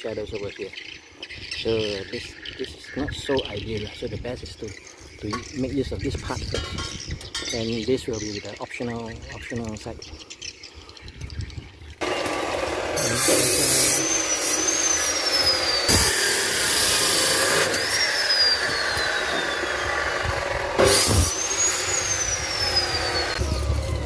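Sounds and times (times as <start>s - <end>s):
cut-off saw grinding metal: 12.0s - 24.0s.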